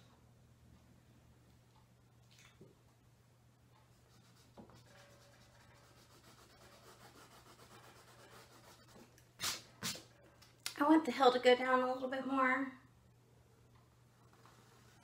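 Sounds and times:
pencil scratching on canvas: 0:04.1 - 0:10.0.

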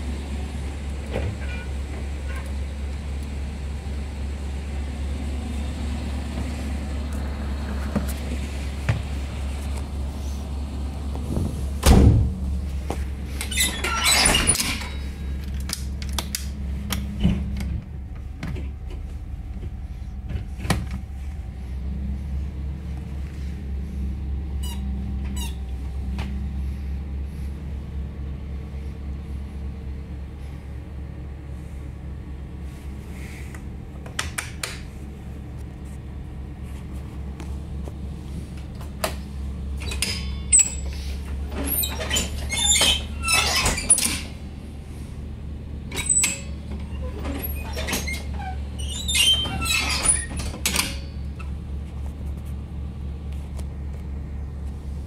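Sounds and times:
bus engine idling: 0:00.0 - 0:55.0
bus door lever clatter: 0:13.4 - 0:17.8, 0:34.0 - 0:35.0, 0:38.7 - 0:44.4, 0:49.0 - 0:51.5.

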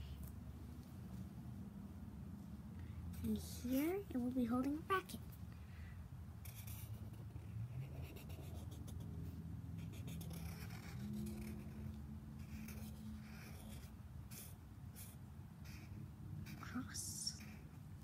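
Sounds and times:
low steady hum: 0:00.0 - 0:18.0
marker scratching on paper: 0:06.4 - 0:17.9.

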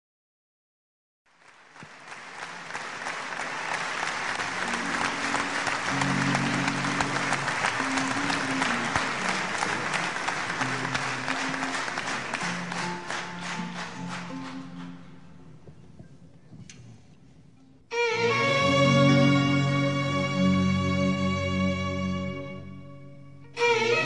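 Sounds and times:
audience applauding: 0:01.3 - 0:15.3
band playing low melodic notes: 0:04.3 - 0:16.4, 0:17.9 - 0:24.0.

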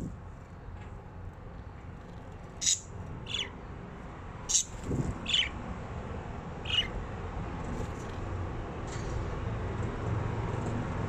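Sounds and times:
budgerigars chirping: 0:02.6 - 0:03.6, 0:04.5 - 0:05.6, 0:06.6 - 0:07.0.

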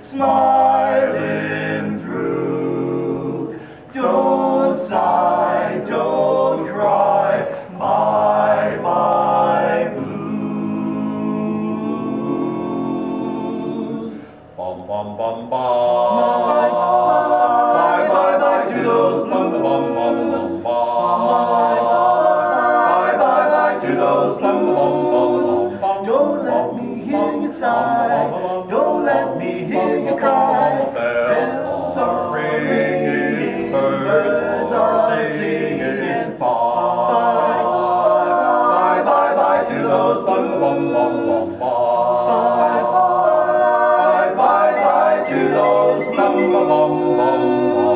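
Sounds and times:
male quartet singing a cappella: 0:00.0 - 0:47.9.

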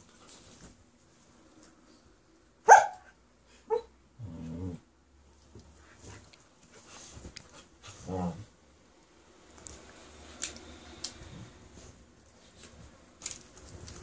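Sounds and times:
dog barking: 0:02.6 - 0:03.9
dog growling: 0:04.2 - 0:04.9, 0:08.0 - 0:08.5.

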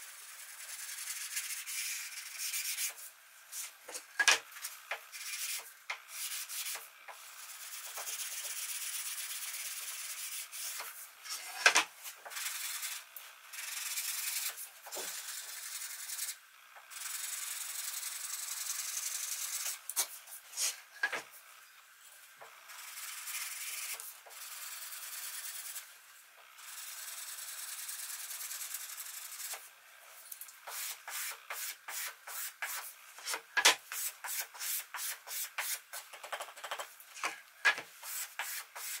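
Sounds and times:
sanding block rubbing wood: 0:00.4 - 0:03.7, 0:05.2 - 0:10.9, 0:30.7 - 0:36.0, 0:38.0 - 0:39.0.

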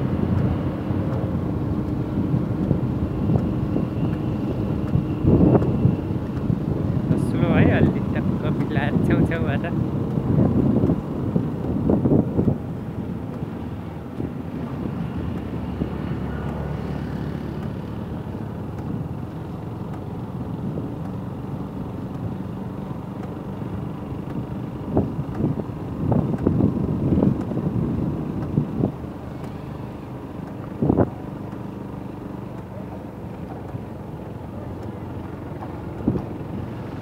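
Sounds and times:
low rumble of road traffic: 0:00.0 - 0:37.0.

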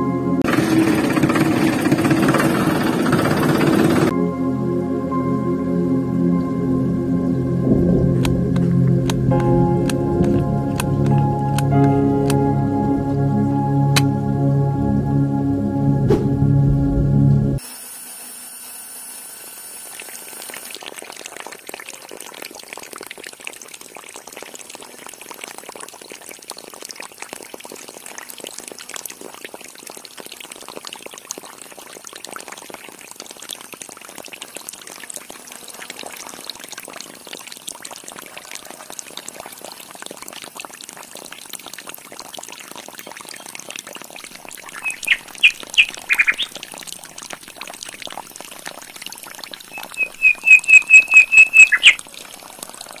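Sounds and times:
water pouring from hose: 0:07.7 - 0:12.4, 0:17.6 - 0:53.0
water trickling through pipe: 0:08.1 - 0:12.4, 0:17.6 - 0:53.0
short high chirps: 0:44.8 - 0:46.5, 0:49.7 - 0:52.0.

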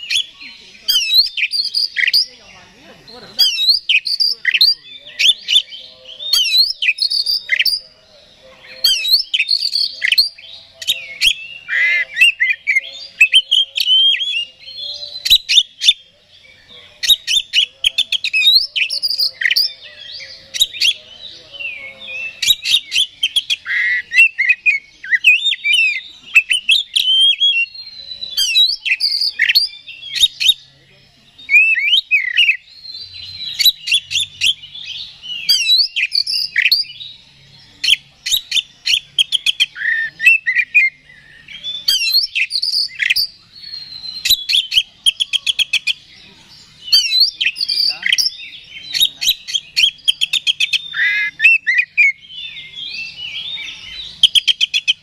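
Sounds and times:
bird singing loudly: 0:00.0 - 0:55.0.

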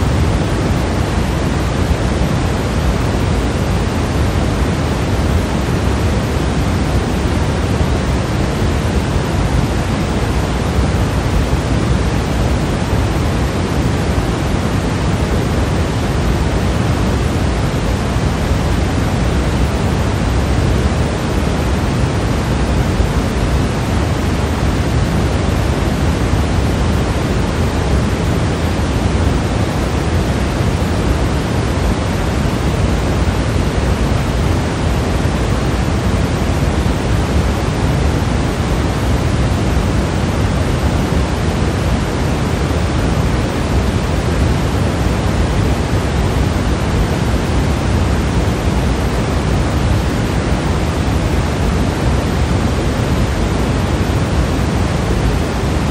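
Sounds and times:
pink noise hiss: 0:00.0 - 0:55.9.

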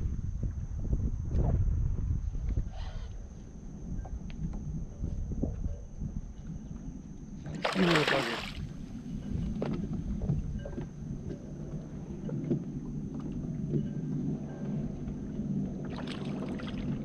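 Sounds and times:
waves lapping against hull: 0:07.5 - 0:17.0
fish splashing at surface: 0:07.6 - 0:08.6.

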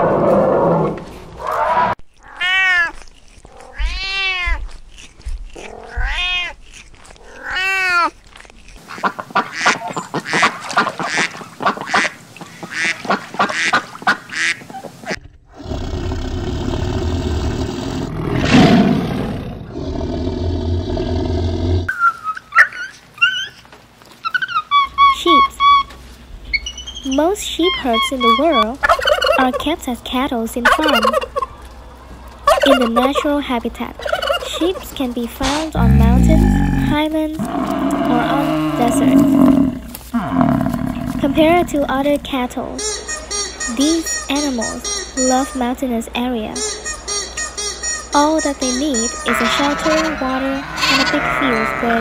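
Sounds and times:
ducks quacking: 0:08.9 - 0:15.2
rising and falling animal calls: 0:35.8 - 0:41.7
high chirping calls: 0:42.8 - 0:45.6.

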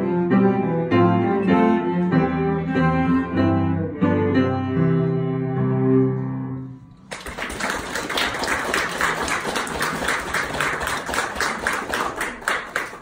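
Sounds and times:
audience applauding: 0:07.0 - 0:13.0.

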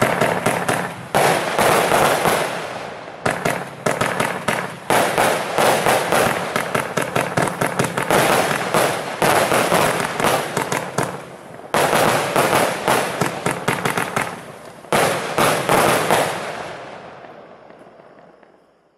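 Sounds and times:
firework volleys crackling: 0:00.0 - 0:18.9.

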